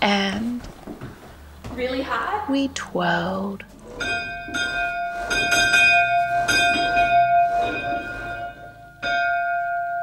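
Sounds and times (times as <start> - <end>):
church bell ringing: 3.8 - 10.0.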